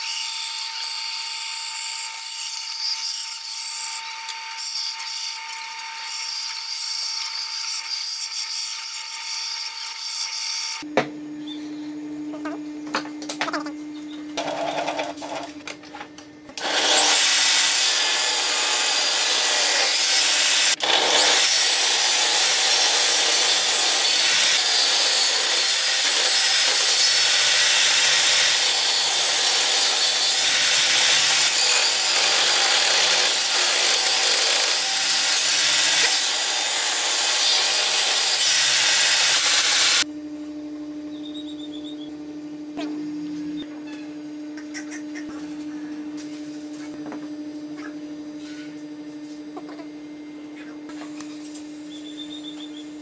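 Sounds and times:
table saw cutting wood: 0:16.6 - 0:40.1.

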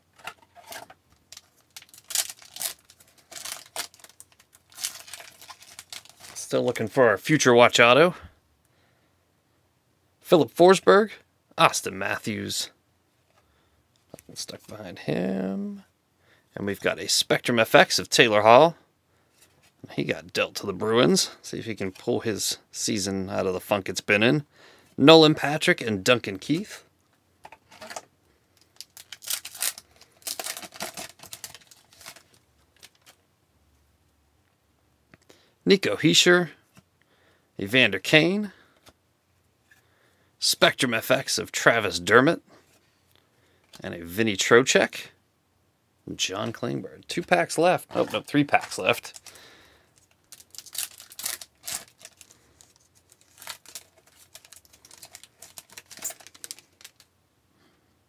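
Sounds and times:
card pack wrapper tearing: 0:00.2 - 0:06.6, 0:28.7 - 0:33.2, 0:48.0 - 0:49.4, 0:50.0 - 0:57.1.

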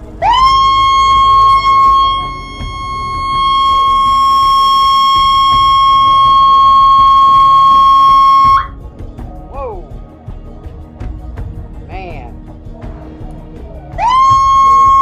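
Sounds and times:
high-pitched siren tone: 0:00.2 - 0:08.7, 0:14.0 - 0:15.0.

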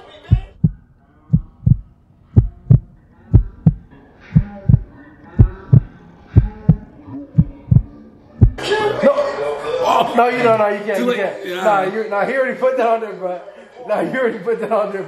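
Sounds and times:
heartbeat thumps: 0:00.3 - 0:08.6.

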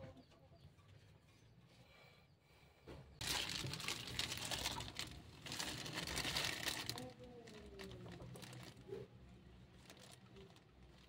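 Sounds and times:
plastic bag crinkling: 0:03.2 - 0:11.0.

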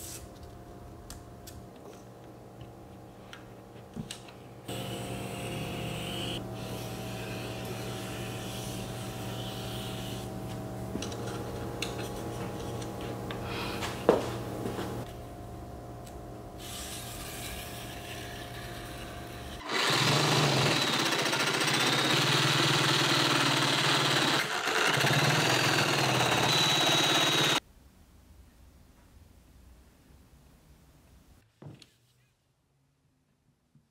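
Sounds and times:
power tool cutting fibreboard: 0:19.6 - 0:27.6.

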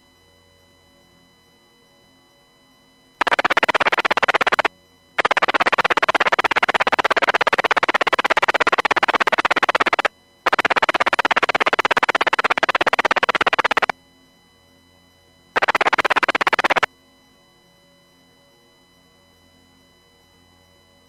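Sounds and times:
radio static bursts: 0:03.2 - 0:13.9, 0:15.6 - 0:16.9.

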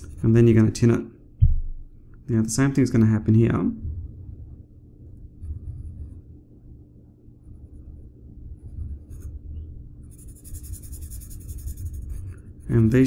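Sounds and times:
low background hum: 0:00.0 - 0:13.0
marker scratching on paper: 0:08.6 - 0:09.3, 0:10.1 - 0:13.0.

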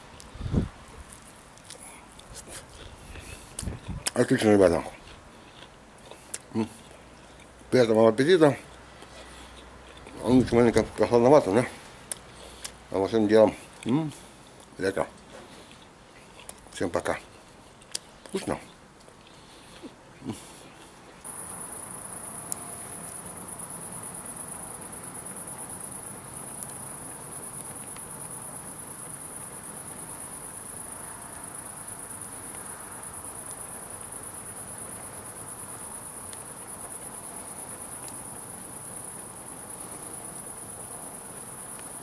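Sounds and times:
fire crackling: 0:00.0 - 0:08.0, 0:31.6 - 0:42.0.

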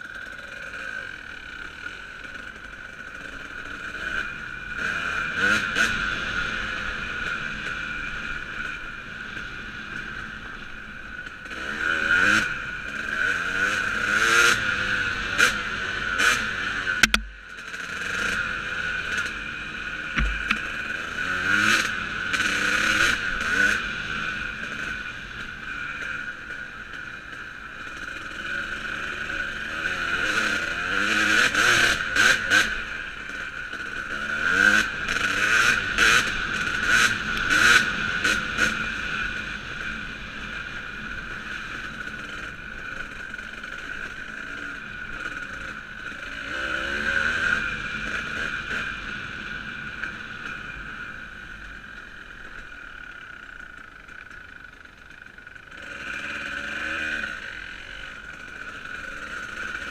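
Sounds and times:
dirt bike engine revving: 0:00.0 - 0:52.7, 0:53.3 - 0:59.9
sharp rattling knocks: 0:20.2 - 0:20.7.

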